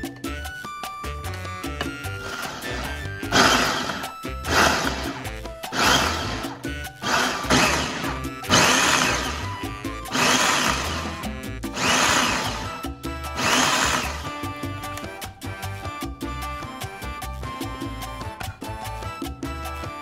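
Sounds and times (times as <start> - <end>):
food processor chopping in pulses: 1.9 - 12.8, 13.4 - 14.5.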